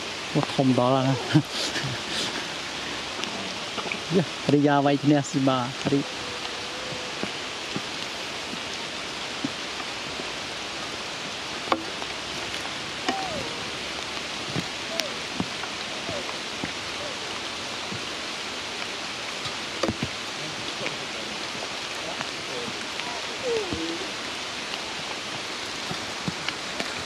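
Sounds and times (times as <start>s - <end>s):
rain on leaves and stone: 0.0s - 27.0s
short gliding calls: 12.7s - 17.8s.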